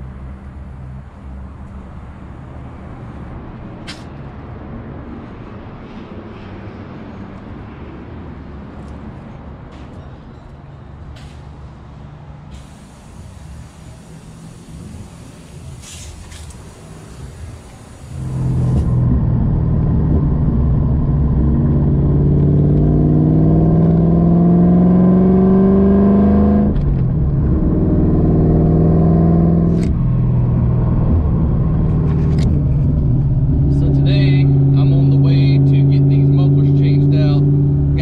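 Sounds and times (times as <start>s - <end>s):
car engine revving while accelerating: 18.1s - 30.0s.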